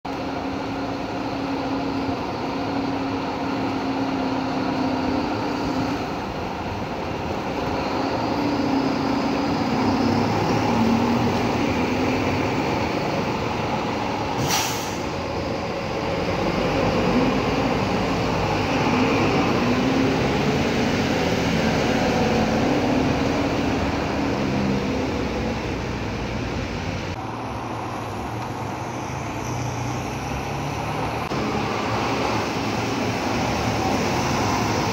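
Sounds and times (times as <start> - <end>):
bus engine drone: 0.1 - 34.9
air brake hiss: 14.4 - 15.2.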